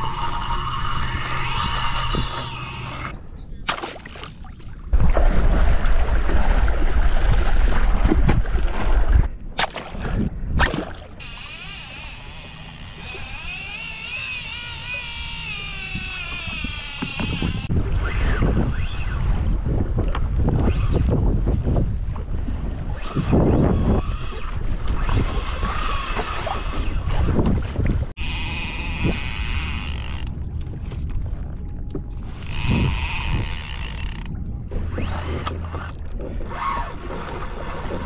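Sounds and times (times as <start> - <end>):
fishing reel drag whining: 0.0 - 3.2, 11.2 - 19.5, 20.6 - 21.1, 22.9 - 27.4, 28.2 - 30.4, 32.2 - 38.0
water noise: 0.0 - 38.0
wind buffeting microphone: 14.4 - 38.0.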